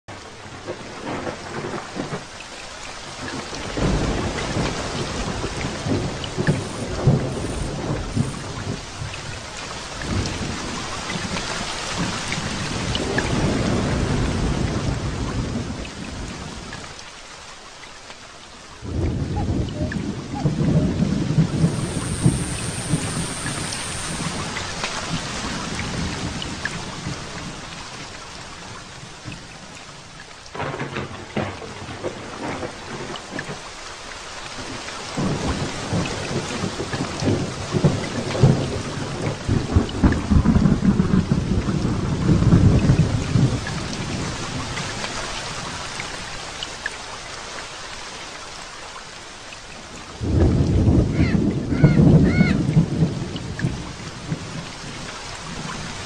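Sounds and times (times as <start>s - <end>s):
rain falling: 0.1s - 56.0s
low thunder rumbling: 0.2s - 2.3s, 3.2s - 11.4s, 12.0s - 16.7s, 18.8s - 27.7s, 30.6s - 33.6s, 34.6s - 45.0s, 50.1s - 56.0s.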